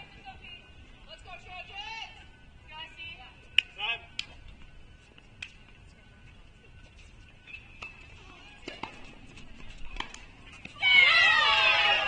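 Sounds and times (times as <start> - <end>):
tennis balls struck and bouncing: 7.5 - 10.8.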